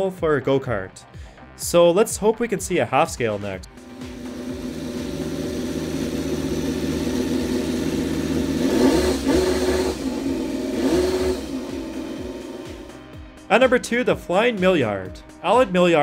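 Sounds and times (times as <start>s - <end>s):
small engine idling and revving: 3.7s - 13.2s.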